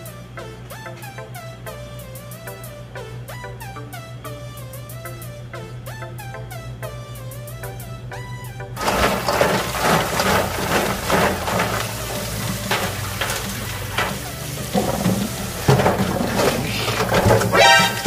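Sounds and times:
shells clattering in metal bowl: 8.8s - 18.0s.

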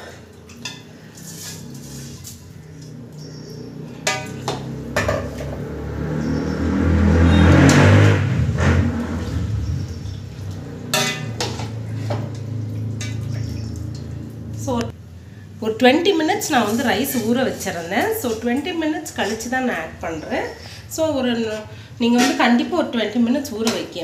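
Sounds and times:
metal spoon scraping steel pot: 0.6s - 2.4s, 10.9s - 12.4s
liquid sloshing: 9.9s - 14.6s.

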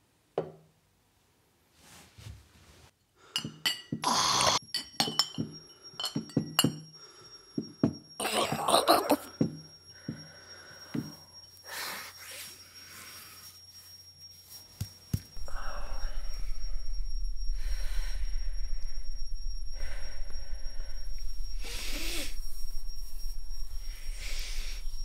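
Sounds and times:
man breathing heavily: 15.4s - 23.1s
low rumbling drone: 15.4s - 25.0s.

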